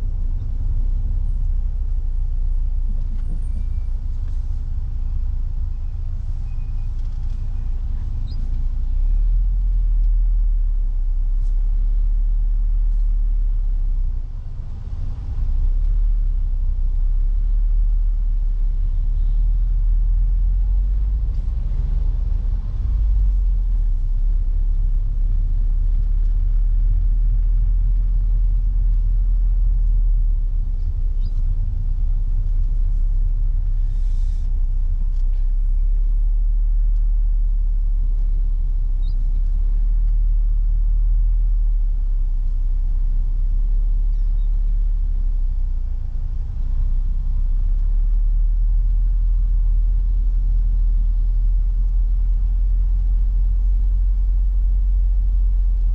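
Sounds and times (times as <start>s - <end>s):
car engine and road noise: 0.0s - 55.9s
brief hiss: 33.8s - 34.5s.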